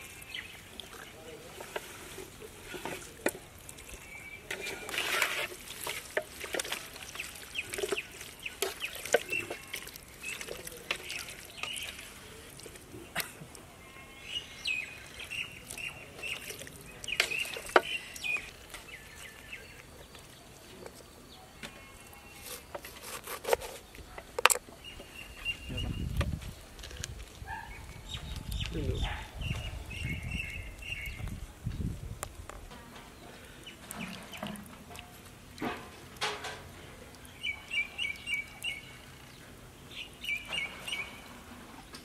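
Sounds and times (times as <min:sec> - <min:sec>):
hand squelching mixing chicken: 0:00.0 - 0:21.1
faint birds chirping: 0:00.0 - 0:42.0.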